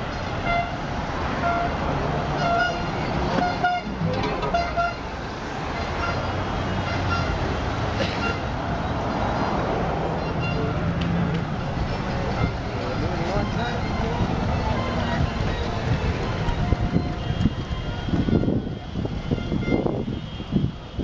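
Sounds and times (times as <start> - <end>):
traffic rumble: 0.0 - 21.0
car horns tooting: 0.3 - 0.8, 1.4 - 5.2, 5.8 - 8.6, 10.2 - 10.8, 12.2 - 21.0.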